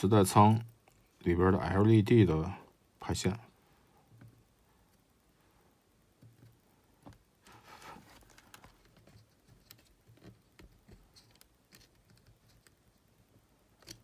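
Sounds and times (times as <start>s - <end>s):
soft rustle: 3.5s - 14.0s.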